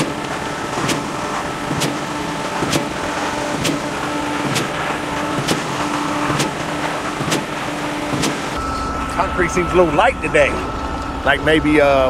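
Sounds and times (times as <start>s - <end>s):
pump stroke knocks: 0.0s - 8.6s
concrete pump truck running: 0.0s - 12.0s.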